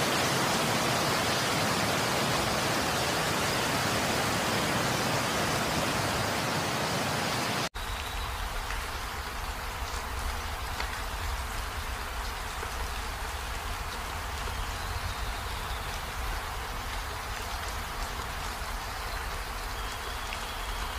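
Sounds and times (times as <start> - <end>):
rain rushing: 0.0 - 20.9
rain patter with drop ticks: 7.7 - 20.9.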